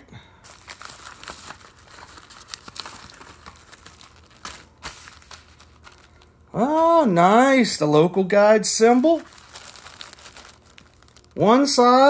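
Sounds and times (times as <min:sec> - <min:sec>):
plastic packaging crinkling: 0:00.4 - 0:07.0, 0:08.7 - 0:11.9.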